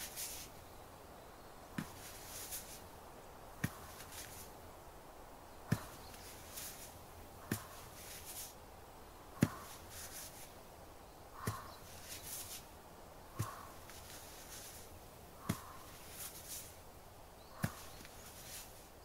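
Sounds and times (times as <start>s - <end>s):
brief rustle: 0.0s - 0.5s, 1.8s - 2.8s, 5.8s - 8.6s, 11.5s - 12.7s
soft dull thuds of pressing: 1.7s - 2.8s, 3.5s - 4.5s, 5.6s - 8.4s, 9.3s - 10.4s, 11.4s - 12.6s, 13.3s - 16.7s, 17.5s - 18.6s.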